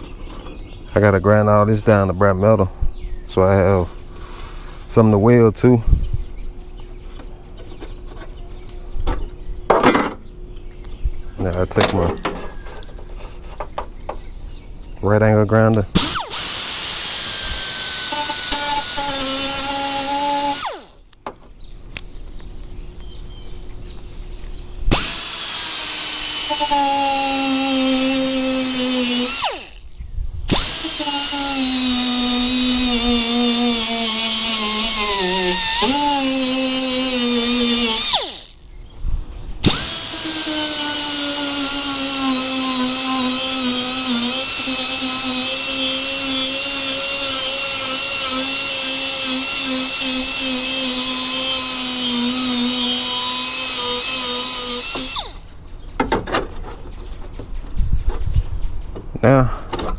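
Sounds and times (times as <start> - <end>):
air die grinder whining on metal: 15.9 - 21.1, 24.9 - 29.9, 30.5 - 38.6, 39.6 - 55.5.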